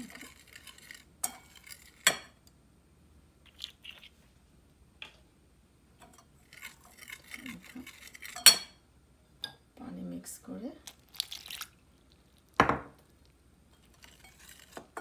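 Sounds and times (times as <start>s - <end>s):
whisk scraping bowl: 0.0s - 2.2s, 6.4s - 8.6s, 13.8s - 15.0s.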